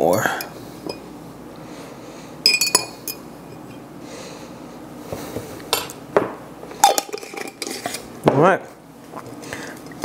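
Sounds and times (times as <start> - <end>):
cutlery clinking against glass jar: 2.5 - 3.2.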